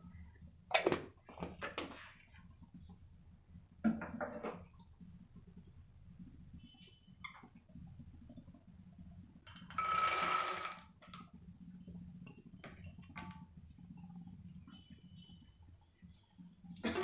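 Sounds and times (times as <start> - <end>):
seeds rattling into pan: 9.5 - 10.9.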